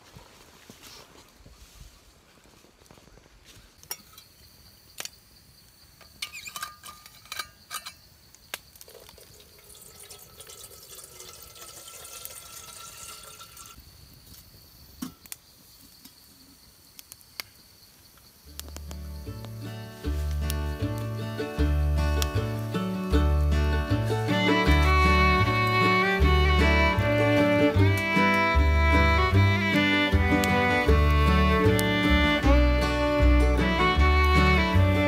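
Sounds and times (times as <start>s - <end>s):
metal bottle clinks: 6.2s - 8.1s
water pouring into metal pot: 8.9s - 13.8s.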